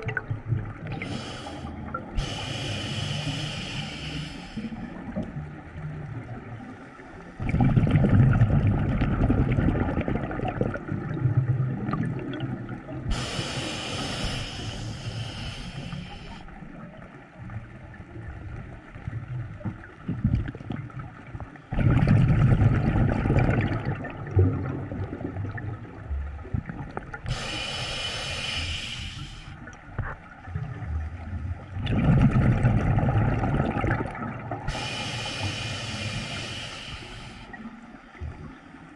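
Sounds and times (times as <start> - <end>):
exhaled bubbles gurgling: 0.0 - 38.6
hissing regulator inhalations: 0.9 - 4.8, 13.1 - 16.5, 27.3 - 29.6, 34.7 - 37.7.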